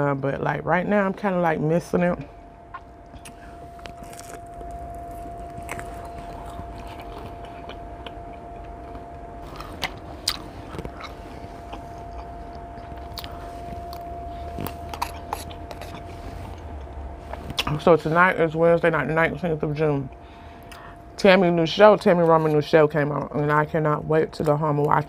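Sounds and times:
faint steady hum: 0.0s - 25.0s
person chewing food: 2.7s - 17.8s.

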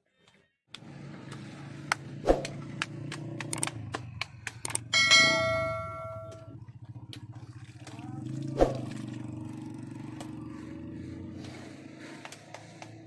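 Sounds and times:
sharp clicks: 0.7s - 4.9s
bell-like notification ding: 5.0s - 6.5s.

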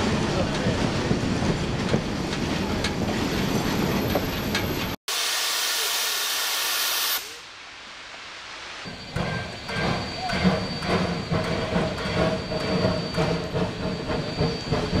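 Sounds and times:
train coach rumble and clickety-clack: 0.0s - 5.0s, 8.9s - 15.0s.

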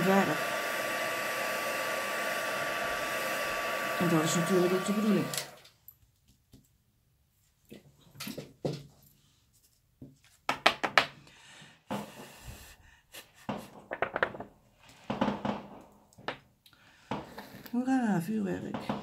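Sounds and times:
firework hissing burst: 0.0s - 5.6s.

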